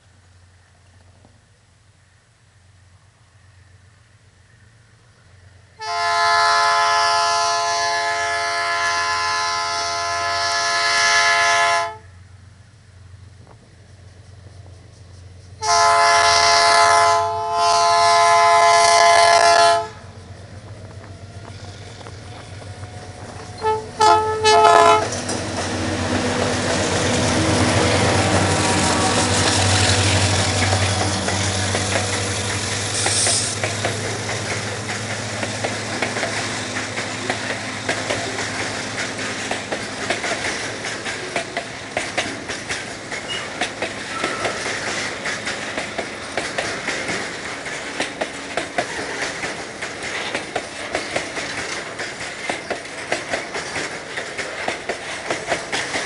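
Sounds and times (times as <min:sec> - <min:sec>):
diesel locomotive engine rumble: 0:00.0 - 0:56.0
locomotive horn: 0:05.8 - 0:12.2, 0:15.6 - 0:20.1, 0:23.5 - 0:25.2, 0:27.2 - 0:31.0
train wheels clicking over rail joints: 0:12.5 - 0:56.0.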